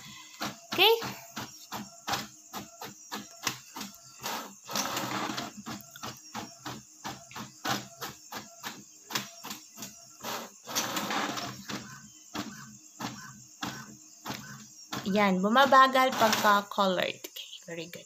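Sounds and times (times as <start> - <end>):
inkjet printer printing: 0.0 - 17.0.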